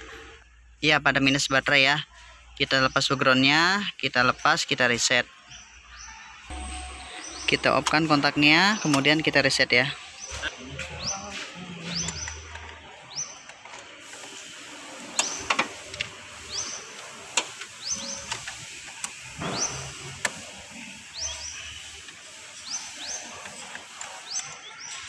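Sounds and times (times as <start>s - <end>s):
high rising chirp: 6.4s - 12.5s.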